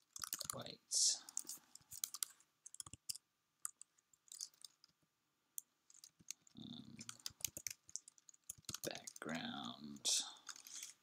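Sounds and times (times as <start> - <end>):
keystrokes on computer keyboard: 0.0 - 0.6, 1.3 - 5.0, 5.6 - 9.4, 10.4 - 11.0.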